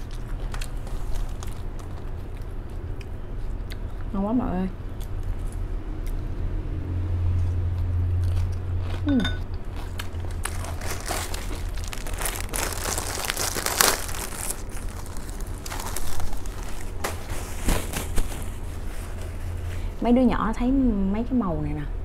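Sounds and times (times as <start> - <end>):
chewing crunchy lettuce: 0.0 - 4.2, 7.3 - 19.7.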